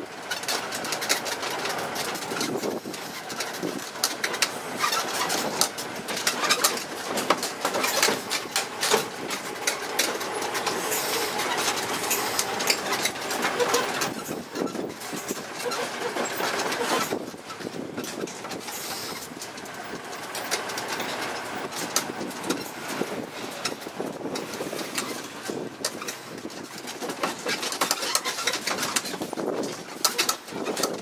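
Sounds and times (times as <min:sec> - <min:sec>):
carriages rattling and clicking: 0:00.0 - 0:31.0
mini train rumbling along street: 0:00.0 - 0:31.0.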